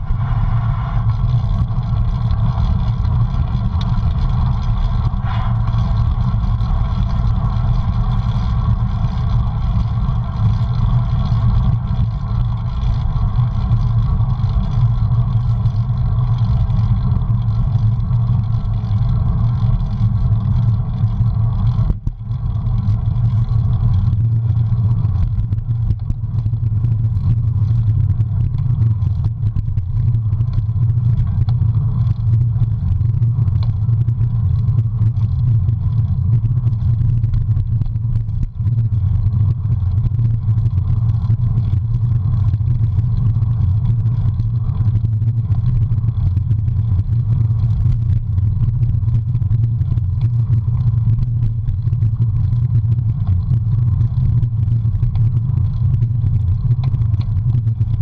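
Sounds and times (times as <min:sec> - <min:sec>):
wind buffeting microphone: 0:00.0 - 0:06.7.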